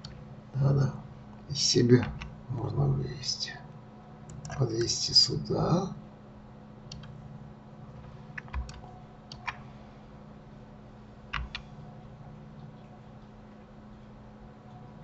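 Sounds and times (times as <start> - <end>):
steady low hum: 0.0 - 15.0
keyboard and mouse clicks: 4.3 - 4.6, 6.9 - 7.2, 8.0 - 9.6, 11.3 - 11.7.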